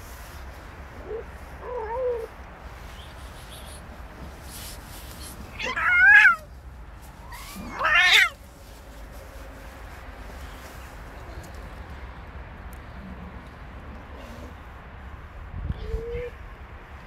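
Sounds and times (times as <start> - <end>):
cat yowling: 5.5 - 6.5, 7.2 - 8.4.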